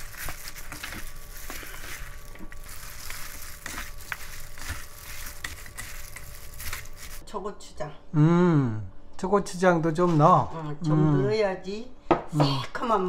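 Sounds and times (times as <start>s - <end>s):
plastic glove crinkling: 0.0s - 7.2s
wet food squelching: 0.0s - 7.2s.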